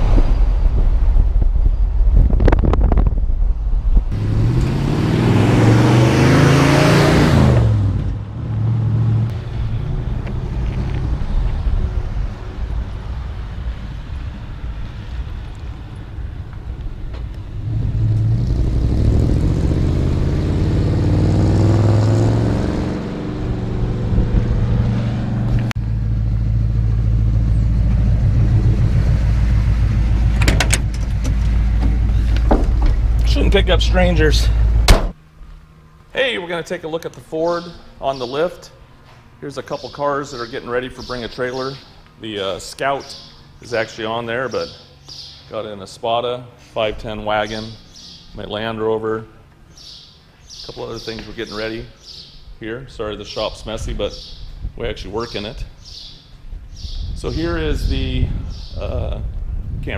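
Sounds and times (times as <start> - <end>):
truck engine accelerating: 4.0 - 38.1
truck driving past: 4.1 - 50.4.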